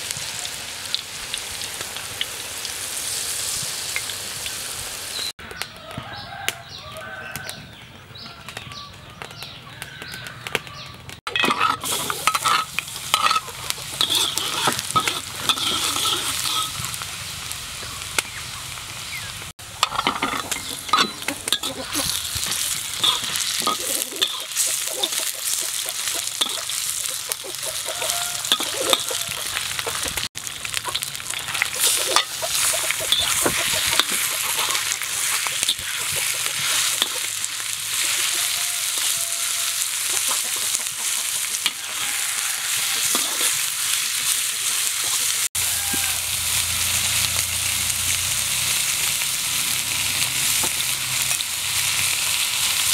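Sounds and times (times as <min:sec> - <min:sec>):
meat frying: 0:00.0 - 0:05.3, 0:09.2 - 0:52.9
garlic sizzling in hot oil: 0:00.0 - 0:07.5, 0:11.3 - 0:52.9
metal spatula scraping wok: 0:11.3 - 0:17.0, 0:19.6 - 0:52.9.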